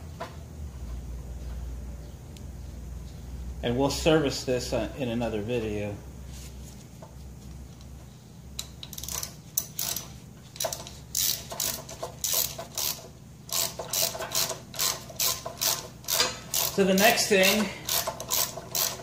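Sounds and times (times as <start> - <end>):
ratchet wrench clicking: 8.6 - 19.0.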